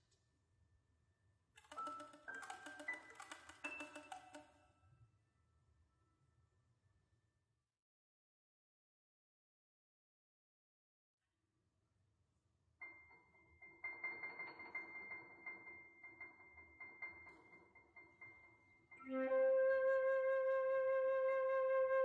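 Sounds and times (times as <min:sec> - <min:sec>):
flute long held note: 0:19.0 - 0:22.0.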